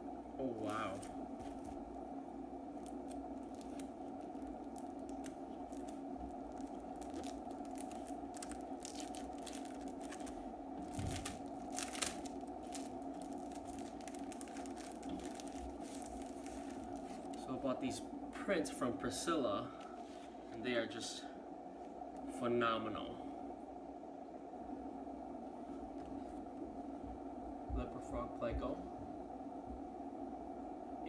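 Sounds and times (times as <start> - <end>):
steady background hum: 0.0 - 31.0
packaging crackles: 0.5 - 1.8, 2.7 - 17.5
packaging rustling: 0.6 - 1.8, 2.7 - 17.5.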